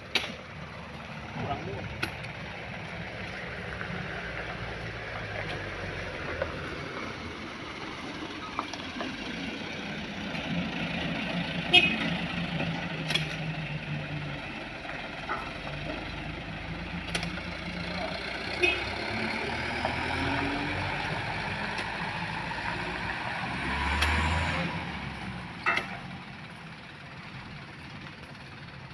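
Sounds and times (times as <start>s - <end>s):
truck engine idling: 0.0s - 23.6s, 24.6s - 28.9s
sharp metal knocks: 25.6s - 26.1s.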